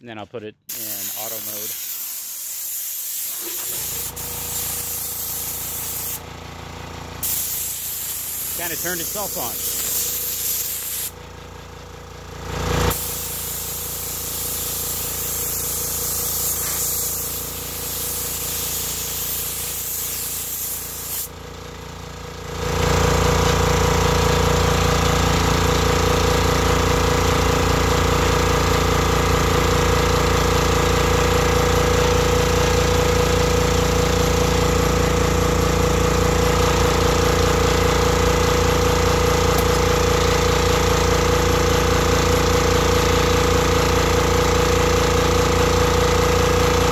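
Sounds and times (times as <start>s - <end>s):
compressed air hissing from hose: 0.7s - 6.2s, 7.2s - 11.2s, 12.9s - 21.3s
air compressor motor running: 0.7s - 46.9s.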